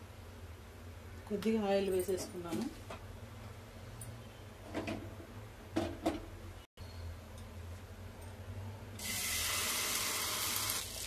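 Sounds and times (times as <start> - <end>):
batter sizzling in hot oil: 9.0 - 11.0.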